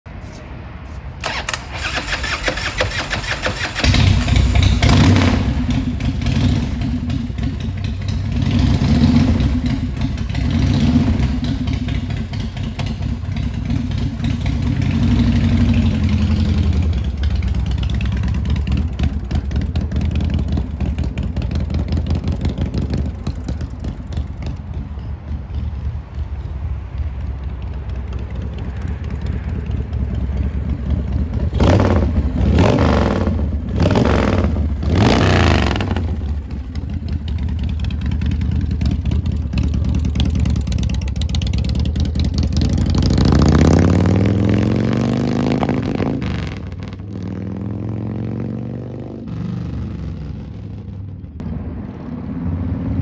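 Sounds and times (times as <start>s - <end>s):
motorcycle starter cranking: 1.2s - 4.8s
motorcycle engine revving: 1.2s - 24.6s, 28.4s - 53.0s.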